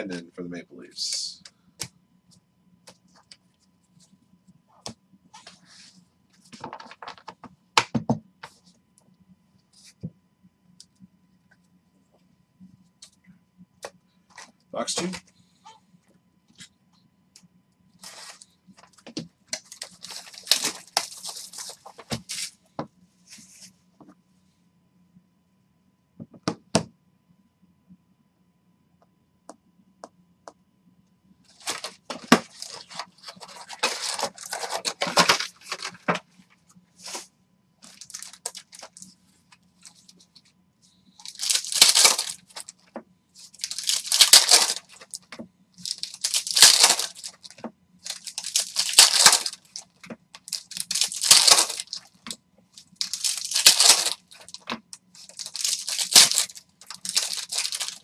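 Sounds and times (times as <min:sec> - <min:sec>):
faint steady hum: 0:00.0 - 0:58.0
foil packs crinkling: 0:19.6 - 0:22.5, 0:31.5 - 0:36.2, 0:37.8 - 0:39.1, 0:41.2 - 0:42.8, 0:43.4 - 0:58.0
foil pack tearing: 0:19.7 - 0:21.8, 0:31.6 - 0:36.0, 0:37.8 - 0:39.0, 0:41.2 - 0:42.7, 0:43.5 - 0:45.2, 0:45.8 - 0:49.8, 0:50.4 - 0:52.1, 0:52.9 - 0:58.0.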